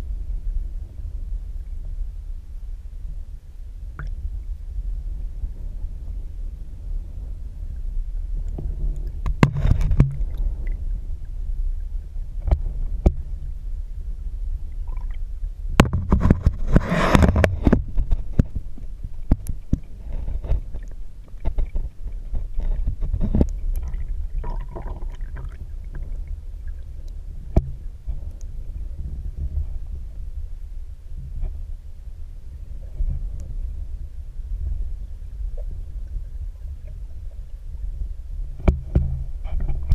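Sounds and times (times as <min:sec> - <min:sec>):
muffled underwater rumble: 0:00.0 - 0:39.9
water gurgling: 0:07.6 - 0:13.6, 0:14.5 - 0:28.8.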